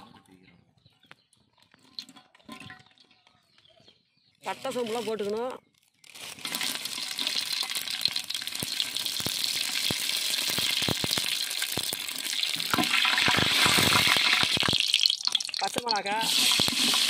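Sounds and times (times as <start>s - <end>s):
spices sizzling in hot oil: 6.0s - 17.0s
spatula stirring in metal pot: 12.6s - 17.0s.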